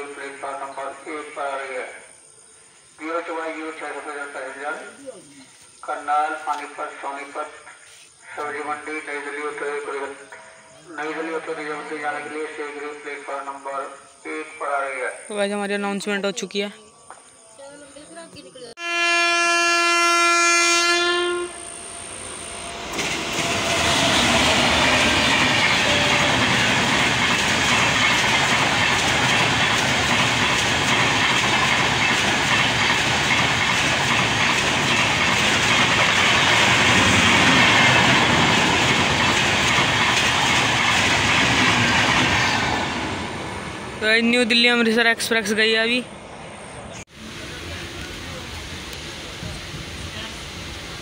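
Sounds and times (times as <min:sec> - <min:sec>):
train horn blast: 0:18.8 - 0:22.8, 0:23.4 - 0:26.4
train wheels rushing on rails: 0:21.0 - 0:45.6, 0:47.2 - 0:51.0.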